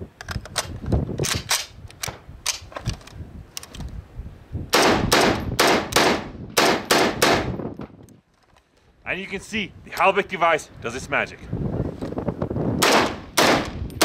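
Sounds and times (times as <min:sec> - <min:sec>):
rifle loading clicks: 0:00.2 - 0:04.0
rifle shots: 0:04.8 - 0:07.6, 0:12.8 - 0:13.8.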